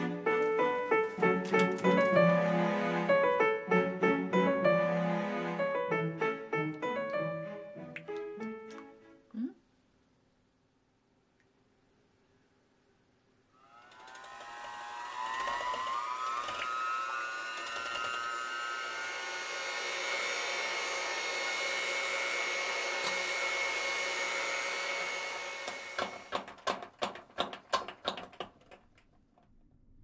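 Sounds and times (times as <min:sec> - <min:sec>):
electric hand mixer whining: 0:00.0 - 0:06.4, 0:13.6 - 0:26.5.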